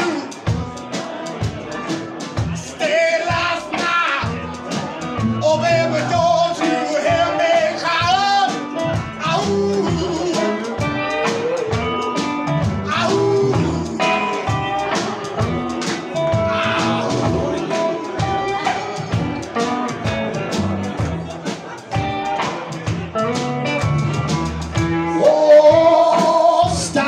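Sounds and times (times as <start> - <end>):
rock band playing: 0.0 - 27.0
man singing held notes: 16.3 - 19.4, 25.1 - 27.0.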